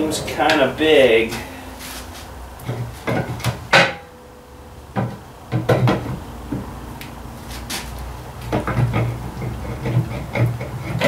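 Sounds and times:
metal clunks and knocks: 2.6s - 4.2s, 4.9s - 6.7s, 8.4s - 11.0s.

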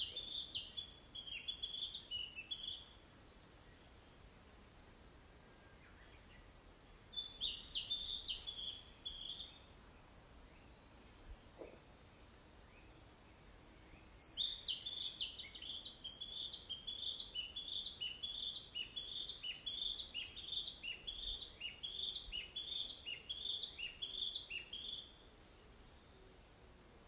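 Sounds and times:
songbird singing: 0.0s - 27.0s.

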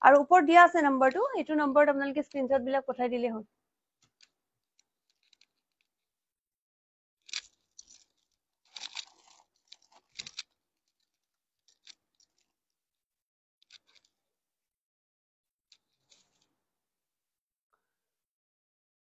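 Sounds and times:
rustles and crunches of handling: 7.3s - 11.1s.

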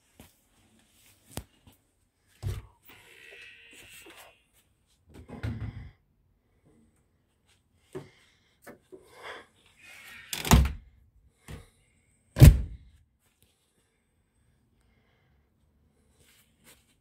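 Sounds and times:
door shutting with heavy thud: 12.4s - 12.8s.

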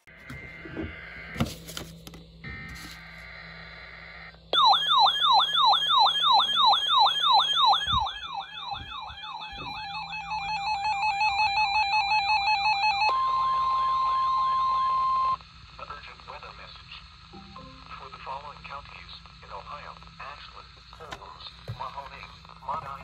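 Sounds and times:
high warbling alarm: 4.5s - 15.4s
steady alarm tone: 4.5s - 15.4s
falling siren sweep: 4.6s - 15.4s.

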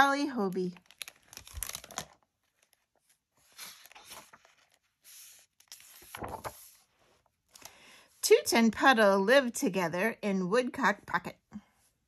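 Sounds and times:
book pages turning: 0.6s - 7.8s.

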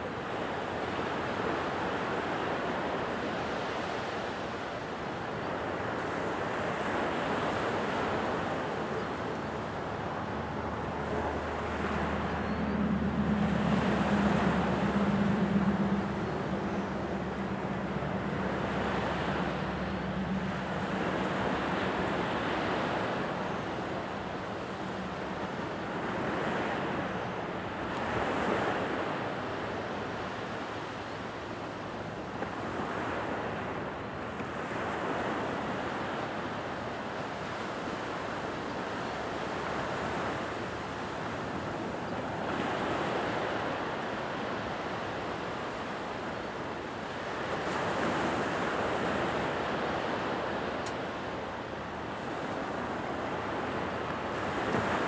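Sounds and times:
low steady hum: 8.9s - 28.2s.

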